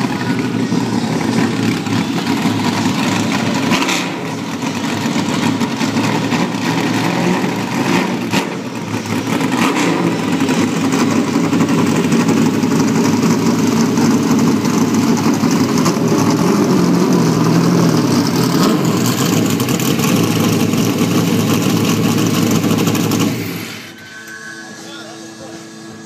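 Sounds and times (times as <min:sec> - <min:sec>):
race car engine running loud: 0:00.0 - 0:24.1.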